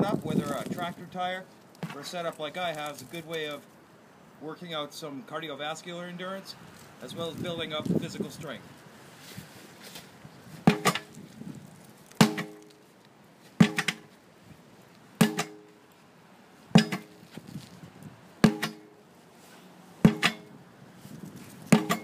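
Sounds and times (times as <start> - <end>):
sledgehammer striking a tire: 10.6 - 11.1, 12.2 - 12.8, 13.6 - 14.2, 15.2 - 15.8, 16.7 - 17.2, 18.4 - 19.0, 20.0 - 20.6, 21.7 - 22.0.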